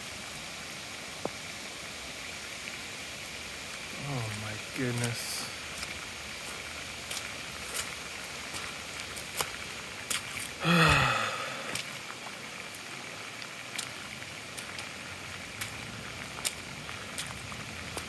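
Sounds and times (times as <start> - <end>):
floodwater rushing: 0.0 - 18.0
man's short vocal sound: 10.6 - 11.8.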